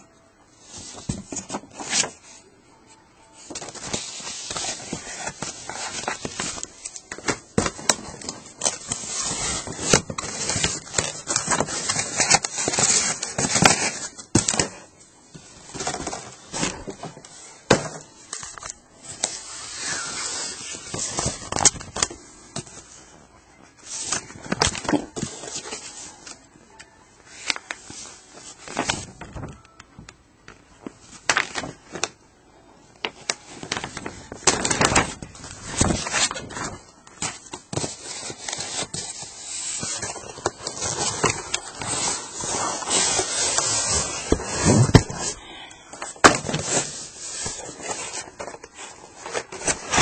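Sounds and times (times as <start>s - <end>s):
packing materials crackling: 33.0s - 45.4s.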